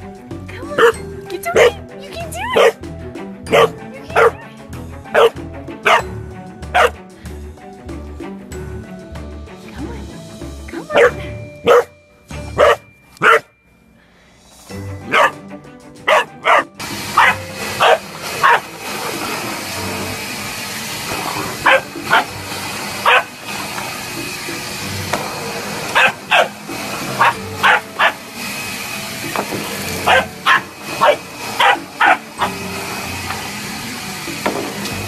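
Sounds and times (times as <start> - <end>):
puppy barking: 0.8 - 1.0, 1.6 - 1.8, 2.5 - 2.8, 3.5 - 4.4, 5.1 - 6.0, 6.7 - 7.0, 10.9 - 12.0, 12.6 - 13.6, 15.0 - 15.4, 16.0 - 18.7, 21.4 - 22.3, 23.0 - 23.4, 25.9 - 26.6, 27.2 - 28.2, 30.0 - 32.6
vacuum cleaner whine: 16.1 - 35.0.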